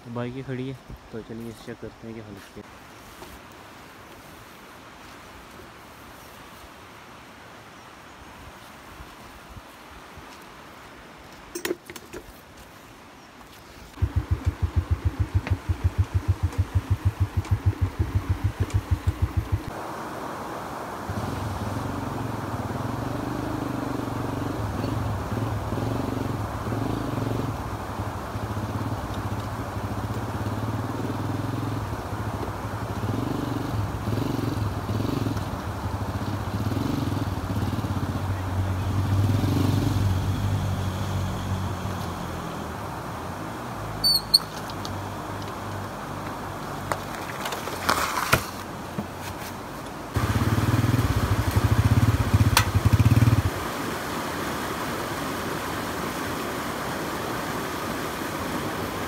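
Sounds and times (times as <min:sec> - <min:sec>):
motorcycle engine running: 0:14.0 - 0:19.7, 0:50.2 - 0:53.6
sharp clicks: 0:14.4 - 0:19.7.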